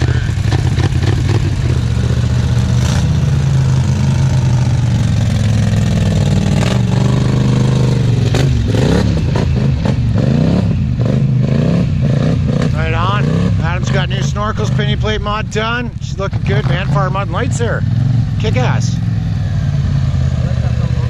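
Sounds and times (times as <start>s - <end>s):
atv engine revving: 0.0s - 21.0s
atv engines droning: 0.0s - 21.0s.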